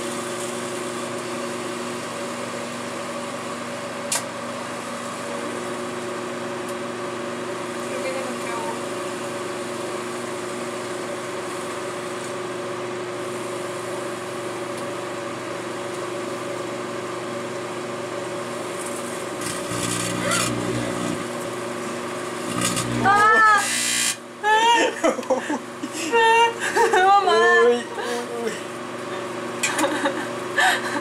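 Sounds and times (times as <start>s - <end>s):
microwave oven humming: 0.0s - 31.0s
harsh buzz with crackles: 18.9s - 24.2s.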